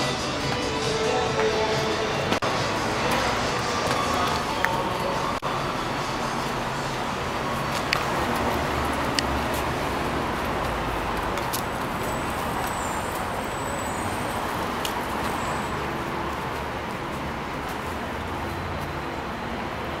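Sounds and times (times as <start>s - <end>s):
city street traffic: 0.0s - 20.0s.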